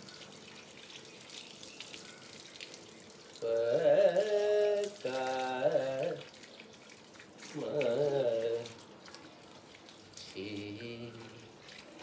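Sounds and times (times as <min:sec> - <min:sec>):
water hissing from hose: 0:00.0 - 0:12.0
man's drawn-out sliding voice: 0:03.4 - 0:06.3, 0:07.5 - 0:08.8.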